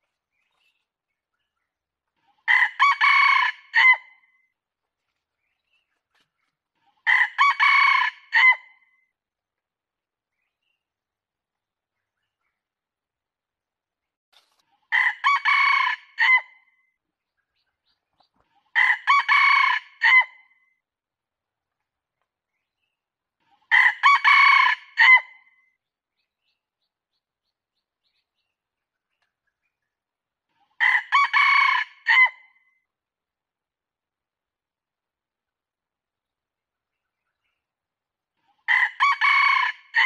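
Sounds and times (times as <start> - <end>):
rooster crowing: 2.5 - 4.0, 7.1 - 8.6, 15.0 - 16.4, 23.7 - 25.3, 30.8 - 32.4, 38.7 - 40.0.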